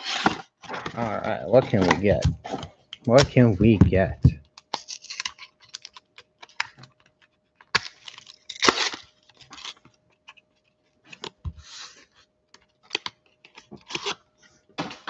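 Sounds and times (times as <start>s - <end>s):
foil wrapper crinkling and ripping: 0.0s - 3.5s, 4.5s - 12.0s, 12.6s - 14.2s.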